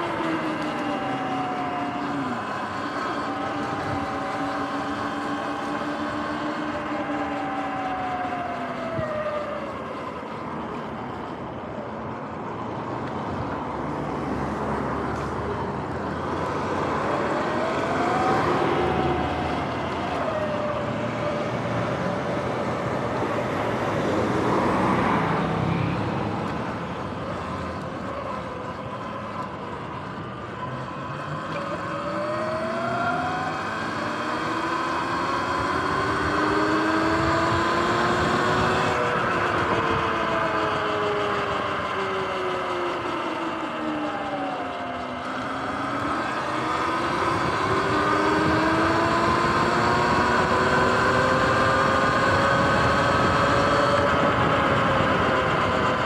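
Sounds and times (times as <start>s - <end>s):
electric motorbike motor whining: 0.0s - 56.0s
road traffic: 0.0s - 56.0s
truck passing: 0.0s - 56.0s
wind and tyre noise: 0.0s - 56.0s.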